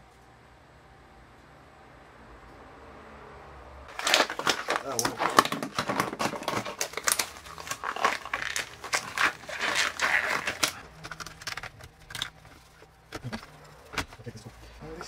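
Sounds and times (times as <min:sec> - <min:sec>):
rubber gloves crinkling: 0:03.9 - 0:15.0.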